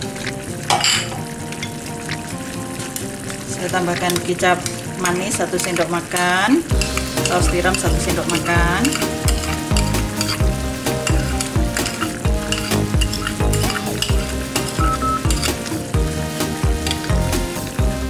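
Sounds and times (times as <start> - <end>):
sauce bubbling in a frying pan: 0.0 - 18.0
background music with beat: 6.7 - 18.0.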